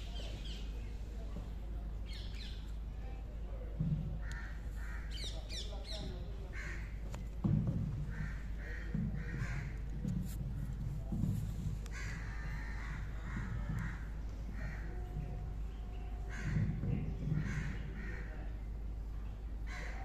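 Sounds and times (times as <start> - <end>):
crows cawing: 4.2 - 5.5, 6.5 - 7.0, 8.0 - 9.9, 11.9 - 15.4, 16.2 - 18.6, 19.7 - 20.0.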